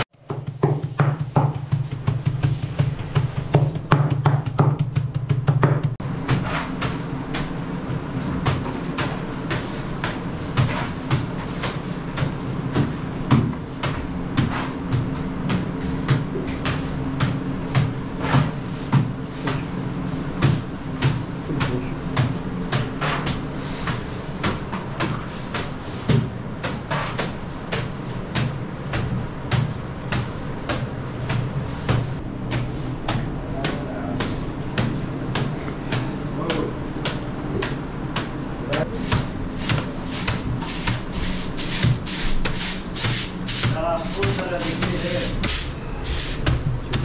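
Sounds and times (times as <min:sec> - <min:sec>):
steady low hum: 0:00.0 - 0:47.0
irregular knocks and clatter: 0:00.2 - 0:42.6.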